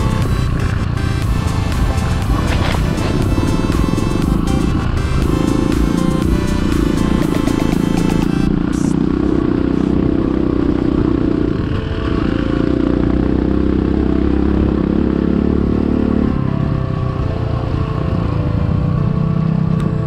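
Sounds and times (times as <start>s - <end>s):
motorcycle engine running: 0.0s - 20.0s.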